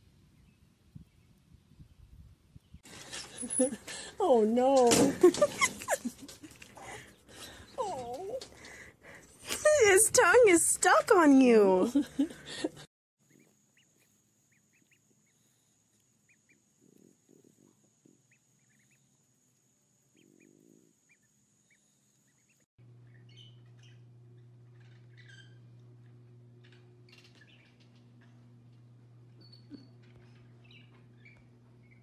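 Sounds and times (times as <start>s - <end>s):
steady low hum: 2.9s - 32.0s
ducklings peeping: 13.3s - 15.6s, 18.2s - 19.1s, 21.1s - 28.4s, 29.4s - 32.0s.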